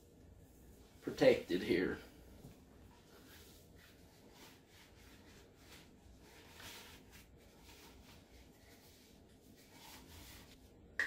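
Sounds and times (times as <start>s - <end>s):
knit sock rustling and sliding: 0.1s - 10.8s.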